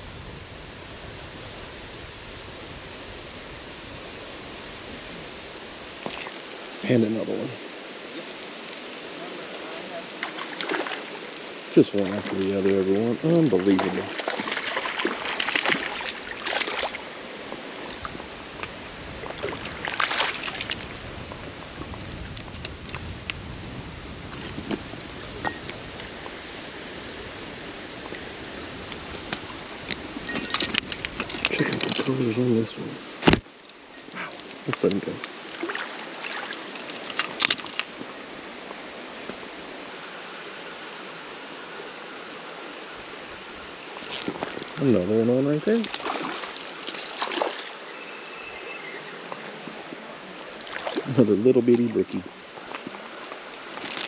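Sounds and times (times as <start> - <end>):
creek water flowing: 0.0 - 54.0
stream rushing: 0.0 - 54.0
water splashes: 4.5 - 23.1, 24.3 - 40.0, 43.8 - 54.0
fish splashing: 7.6 - 12.5, 13.6 - 17.1, 19.2 - 20.9, 35.4 - 38.2, 45.9 - 47.9, 50.3 - 51.1.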